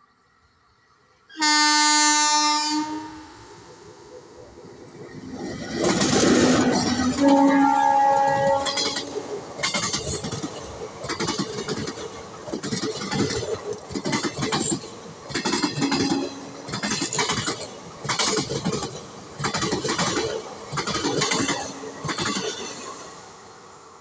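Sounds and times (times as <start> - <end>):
train wheels clattering over joints: 5.3 - 7.4, 8.1 - 22.9.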